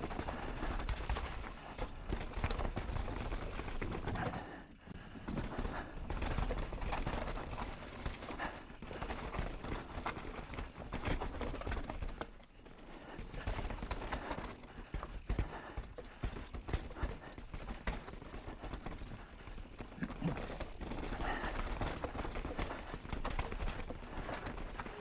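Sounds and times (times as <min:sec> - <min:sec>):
bike rattling: 0:00.0 - 0:25.0.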